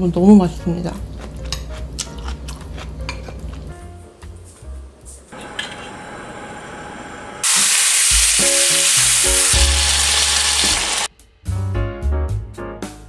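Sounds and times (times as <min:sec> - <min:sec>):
chicken sizzling in a frying pan: 0:07.4 - 0:11.1.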